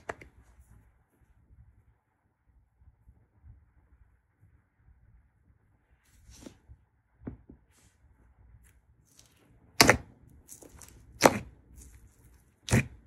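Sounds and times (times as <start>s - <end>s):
hands squishing slime: 8.6s - 13.0s.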